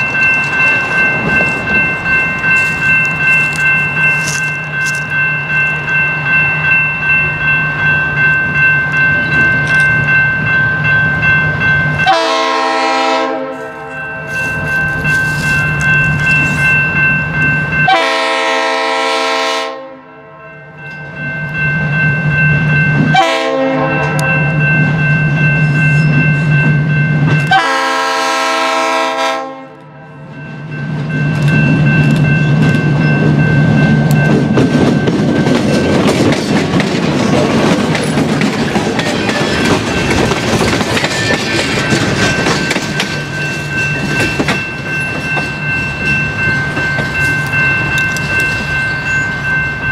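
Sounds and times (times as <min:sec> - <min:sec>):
crossing bell ringing: 0:00.0 - 0:49.9
locomotive air horn blasts: 0:12.1 - 0:14.0, 0:17.9 - 0:20.4, 0:23.1 - 0:24.4, 0:27.5 - 0:30.0
locomotive engine and rattling wheels: 0:30.2 - 0:49.9.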